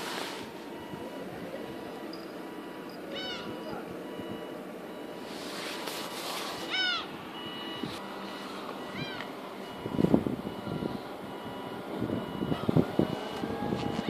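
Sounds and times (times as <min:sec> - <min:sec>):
faint high beeps: 0:00.0 - 0:06.1, 0:07.3 - 0:14.0
short mewing calls: 0:03.1 - 0:03.6, 0:06.6 - 0:07.1.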